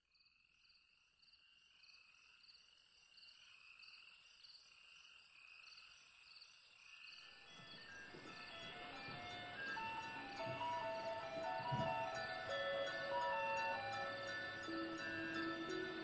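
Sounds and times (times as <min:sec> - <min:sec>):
thin wavering whistle: 0:07.4 - 0:16.0
steady high tone: 0:07.6 - 0:16.0.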